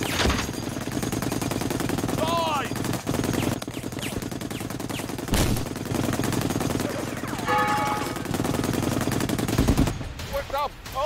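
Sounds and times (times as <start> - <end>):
automatic gunfire: 0.0 - 11.0.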